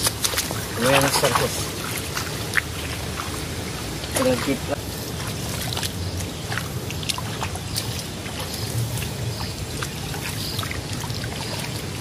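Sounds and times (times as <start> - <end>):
hands splashing in muddy water: 0.0 - 12.0
water trickling: 0.0 - 12.0.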